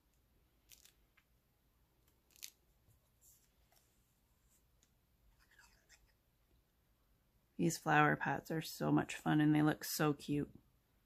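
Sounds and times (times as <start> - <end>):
paper rustling: 5.3 - 6.2.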